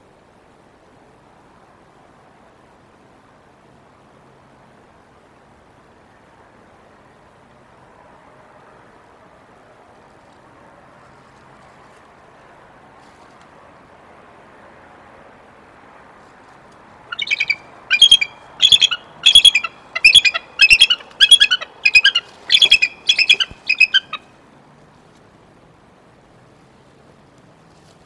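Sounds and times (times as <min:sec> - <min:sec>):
faint hiss: 0:00.0 - 0:28.0
eagle chittering calls: 0:17.1 - 0:24.3.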